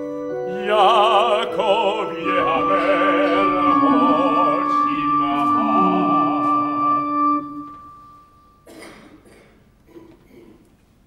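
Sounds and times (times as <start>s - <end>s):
sustained synthesizer chord: 0.4s - 8.6s
operatic singing with vibrato: 0.5s - 7.8s.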